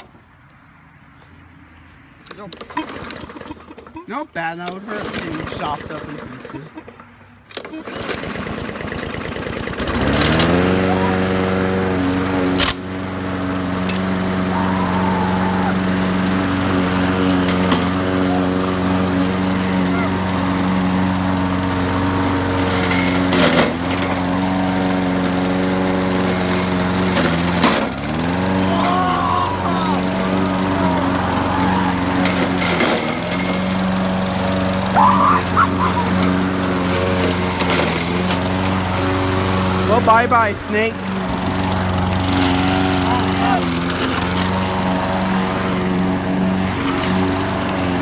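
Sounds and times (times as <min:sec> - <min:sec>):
lawn mower engine running: 0:01.8 - 0:48.0
mower blade striking load: 0:02.3 - 0:10.7, 0:12.4 - 0:12.8, 0:13.8 - 0:14.2, 0:16.7 - 0:24.6, 0:25.5 - 0:38.8.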